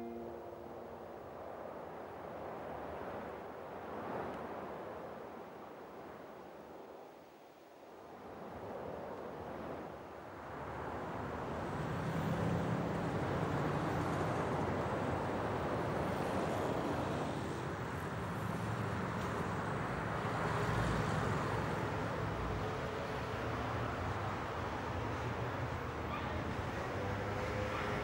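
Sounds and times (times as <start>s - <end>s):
cars passing: 10.4s - 28.0s.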